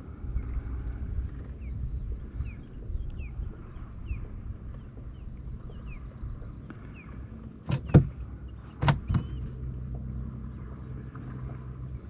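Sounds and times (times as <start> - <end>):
sharp knocks on boat: 7.6 - 8.2, 8.8 - 10.1.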